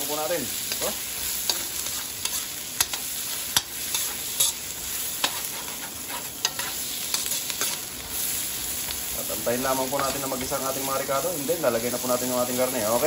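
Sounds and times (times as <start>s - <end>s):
aromatics sizzling in a wok: 0.0s - 13.0s
metal spoon scraping a wok: 0.7s - 7.9s.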